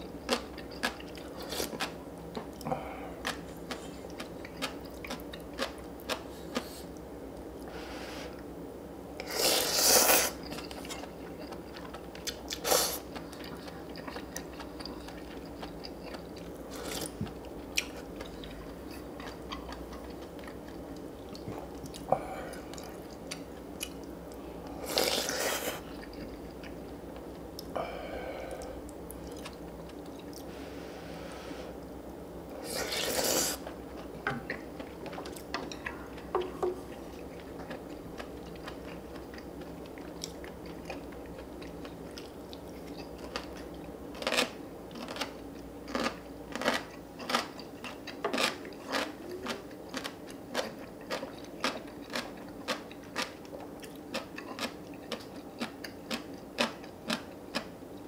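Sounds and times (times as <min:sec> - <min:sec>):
chewing and crunching: 0:00.0 - 0:06.9, 0:09.2 - 0:27.8, 0:28.6 - 0:30.5, 0:32.6 - 0:58.0
steady low hum: 0:00.0 - 0:58.0.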